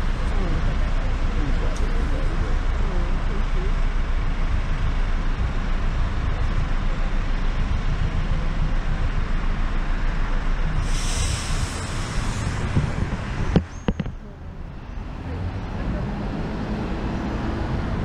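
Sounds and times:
road and traffic noise: 0.0 - 18.0
high hiss: 10.8 - 12.8
wind on microphone: 10.8 - 14.4.

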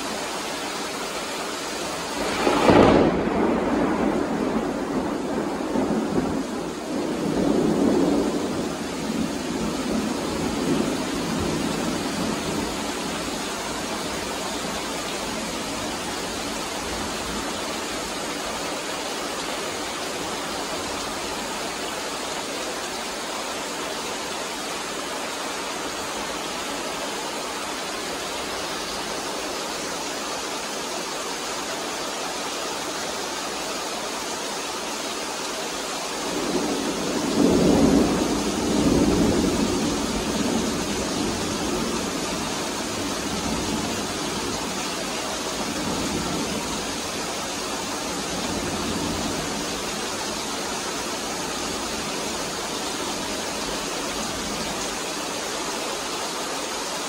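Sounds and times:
heavy rain pouring: 0.0 - 57.0
thunder rumbling: 2.1 - 18.2, 36.3 - 53.6.

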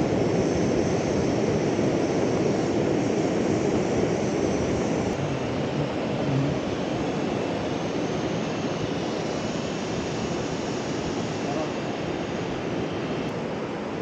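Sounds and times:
river flowing: 4.2 - 14.0.

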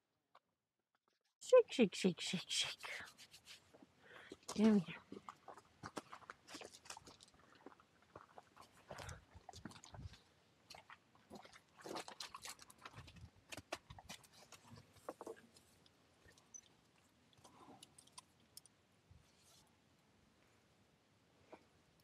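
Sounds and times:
horse chewing: 5.1 - 15.5.

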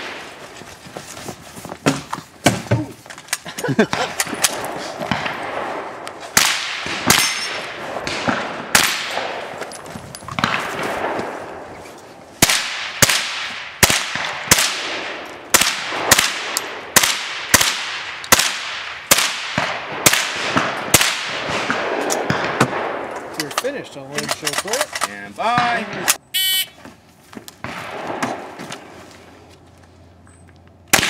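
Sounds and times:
rifle shots: 3.9 - 9.6, 10.4 - 11.7, 12.4 - 23.2, 27.6 - 28.6.

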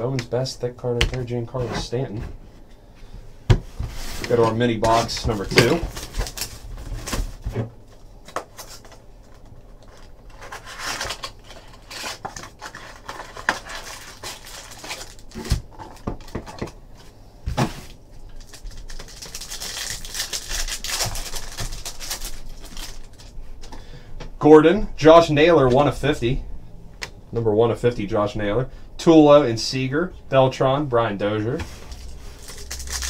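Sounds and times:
packaging crinkling and tearing: 4.3 - 7.4, 8.3 - 16.6, 18.2 - 23.4, 31.9 - 33.0.

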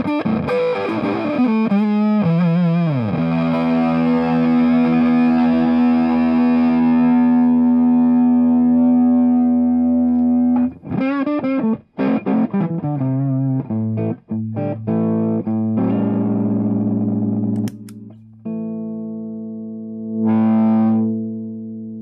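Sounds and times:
fuzzed electric guitar: 0.0 - 22.0
footswitch click: 17.5 - 18.2.

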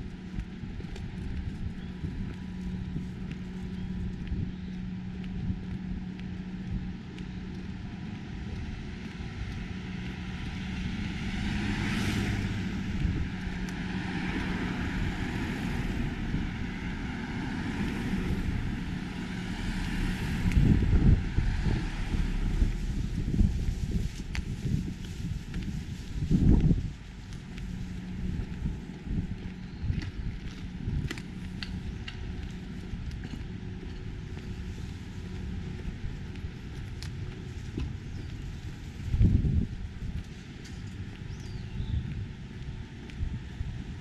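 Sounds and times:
low rumbling: 0.0 - 44.0
traffic hum: 0.0 - 44.0
vehicle passing: 7.7 - 24.9.

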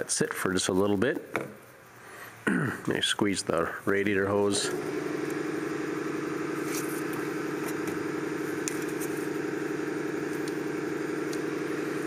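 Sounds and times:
car engine idling: 4.8 - 12.0.

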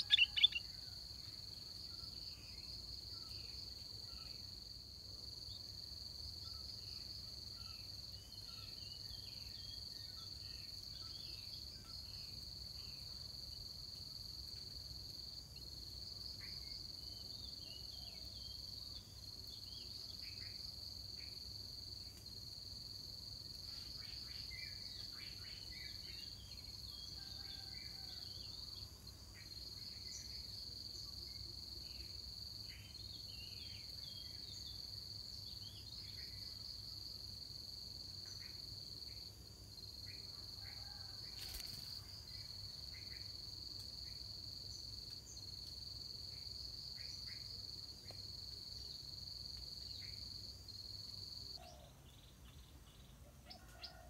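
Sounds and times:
birds chirping: 0.0 - 0.6
insect drone: 0.0 - 54.0.

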